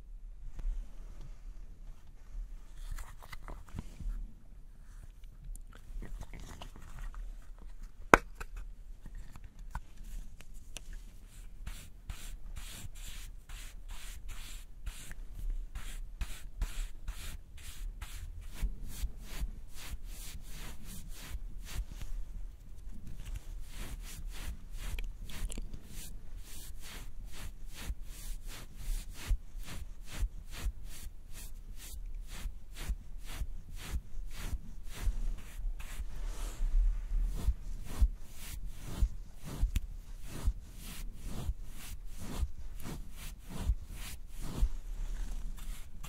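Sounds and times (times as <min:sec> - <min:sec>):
makeup brush scratching powder: 0:11.0 - 0:46.0.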